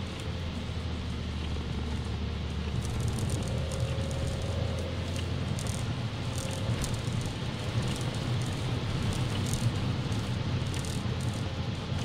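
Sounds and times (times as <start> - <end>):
car engine and road drone: 0.0 - 12.0
crackles of water and rain: 0.0 - 12.0.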